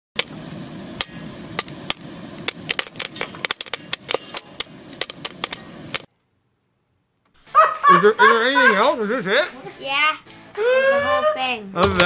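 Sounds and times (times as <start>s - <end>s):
popcorn popping: 0.2s - 6.1s
steady hiss: 0.2s - 6.1s.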